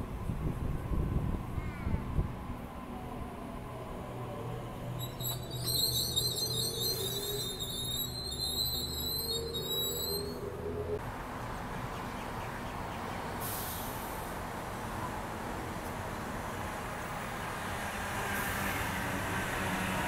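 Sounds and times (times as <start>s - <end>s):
train wheels rumbling on rail: 4.7s - 10.4s.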